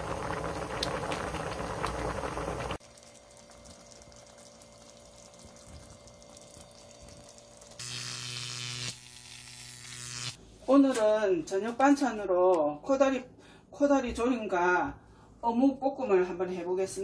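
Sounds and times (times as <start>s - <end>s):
food bubbling in a pan: 0.0s - 7.8s
steady electric buzz: 7.8s - 10.4s.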